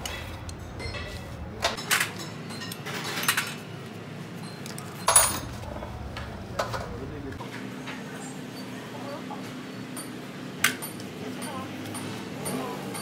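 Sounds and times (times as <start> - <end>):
metallic clinks and knocks of tools: 0.0 - 3.6, 4.4 - 5.6.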